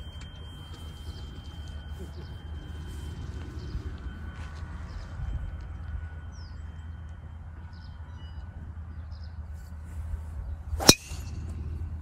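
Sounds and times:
golf club striking ball: 10.8 - 11.6.

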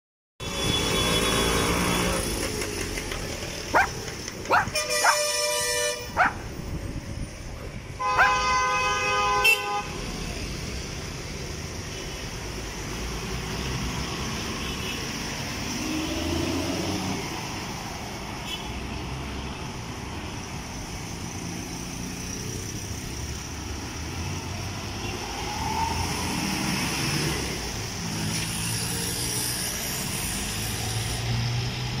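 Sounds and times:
vehicle engine and traffic noise: 0.4 - 32.0
vehicle horn honking: 4.7 - 6.2, 8.0 - 10.0.

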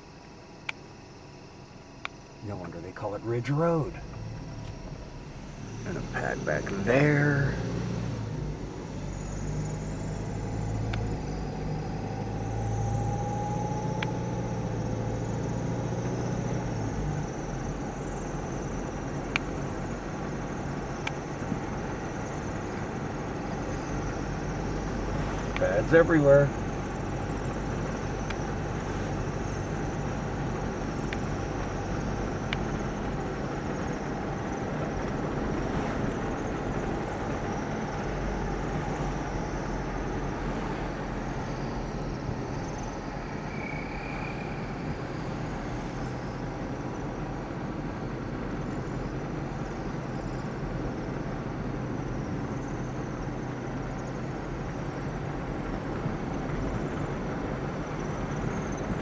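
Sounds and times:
low mechanical rumble with hum: 0.0 - 59.0
faint high-pitched shrilling: 41.4 - 47.4.

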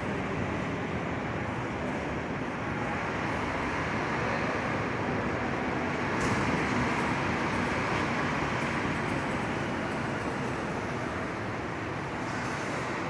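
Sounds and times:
bus engine running: 0.0 - 13.0.

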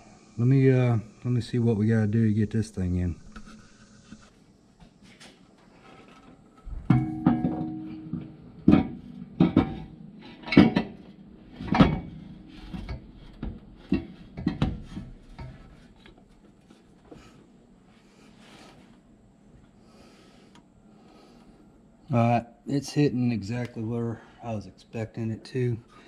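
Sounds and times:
metal tubes clanking: 6.7 - 11.0.

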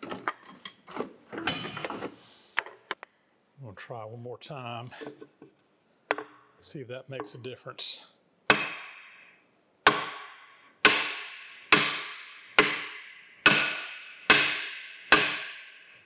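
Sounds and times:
hammer striking iron: 8.5 - 16.0.

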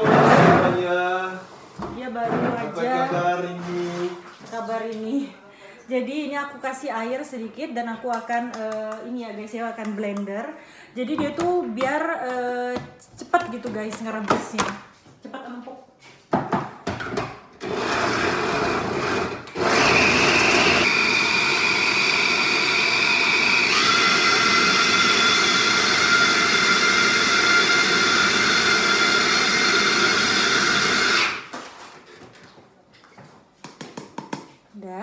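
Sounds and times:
electric blender running: 17.6 - 31.5.

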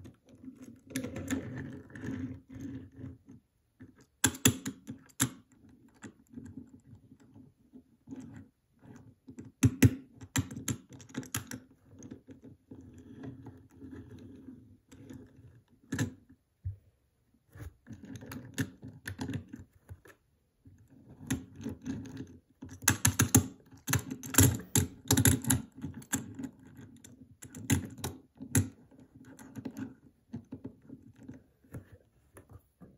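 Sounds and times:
toy car clicks and taps: 22.8 - 26.3.

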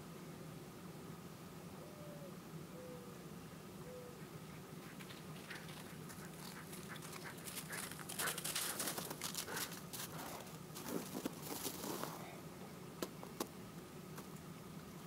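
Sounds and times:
dog paws crunching on snow: 4.9 - 12.2.

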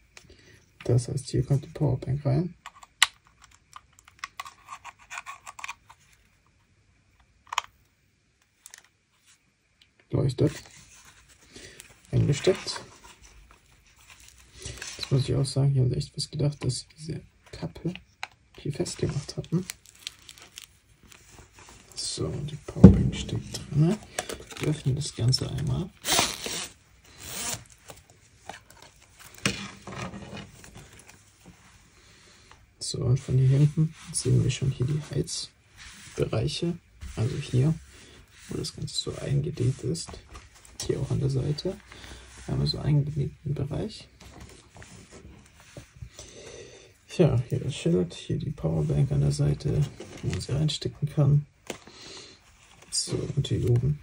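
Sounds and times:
zipper pulled open: 26.0 - 27.7.

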